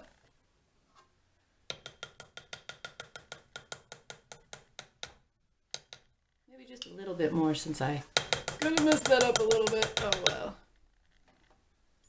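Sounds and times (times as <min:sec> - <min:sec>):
plastic spoon tapping glass jar: 0:01.7 - 0:06.1, 0:08.2 - 0:10.5.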